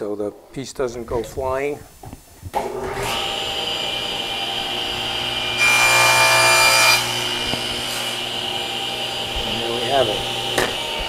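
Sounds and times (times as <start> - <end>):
saw blade cutting wood: 2.6 - 11.0
table saw running: 2.6 - 11.0.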